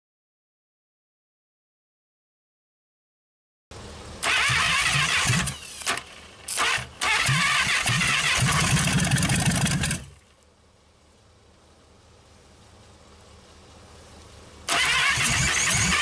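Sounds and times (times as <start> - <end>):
engine starter cranking: 4.2 - 10.2, 14.7 - 16.0.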